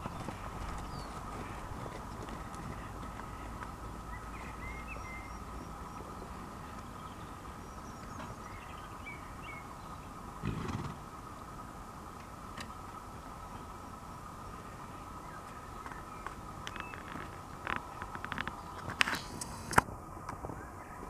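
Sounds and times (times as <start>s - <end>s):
small birds chirping: 0.0s - 11.5s, 12.2s - 19.7s
horse snorting: 10.4s - 11.1s.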